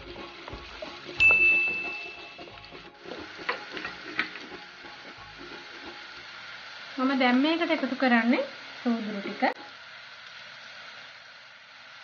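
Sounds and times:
onions sizzling in oil: 0.0 - 12.0
high ding: 1.2 - 2.6.

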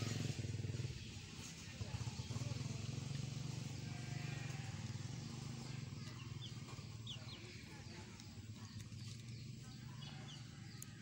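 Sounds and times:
chick peeping: 5.9 - 10.9.

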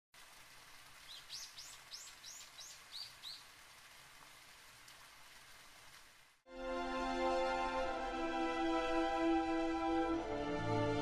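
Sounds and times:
faint steady hiss: 0.2 - 6.4.

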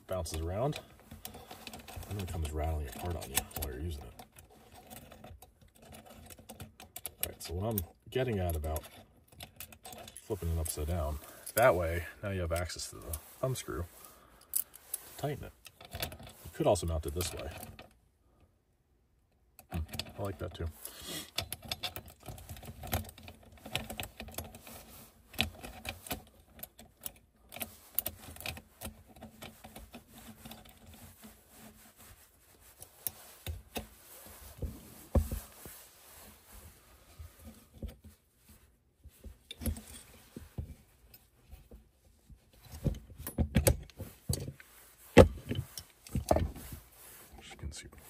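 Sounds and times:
metal clicks and rattles: 0.2 - 11.8, 15.6 - 16.4, 19.3 - 20.4, 21.3 - 31.3.

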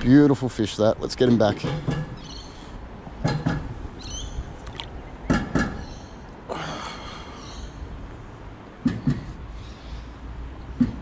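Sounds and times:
water splashing: 4.6 - 5.0.

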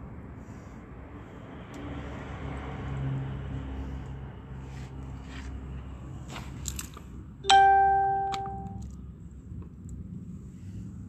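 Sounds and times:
bell-like ding: 7.5 - 8.8.

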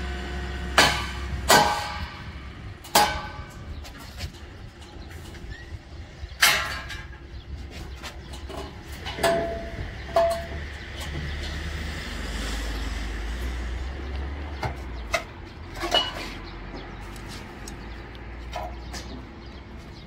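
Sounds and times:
metal tubing clanking: 0.8 - 11.6, 15.0 - 16.6.

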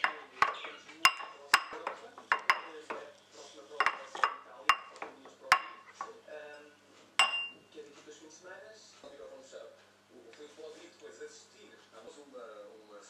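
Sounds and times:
fork clinking and scraping bowl: 0.0 - 3.1, 3.7 - 6.1.

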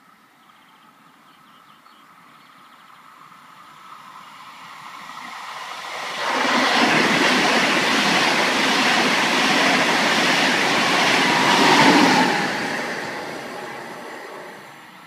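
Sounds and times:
high-speed train passing: 3.1 - 15.0.

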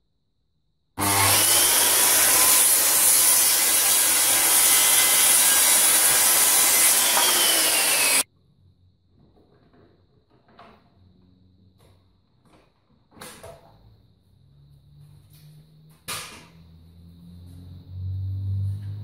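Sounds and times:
circular saw cutting wood: 1.0 - 8.3.

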